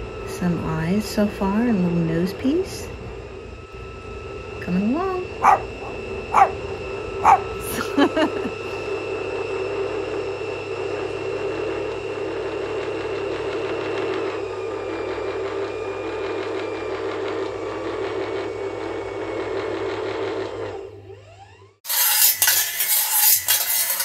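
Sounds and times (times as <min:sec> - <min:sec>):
low hum: 0:00.0 - 0:16.2
machine-like drone: 0:00.0 - 0:19.5.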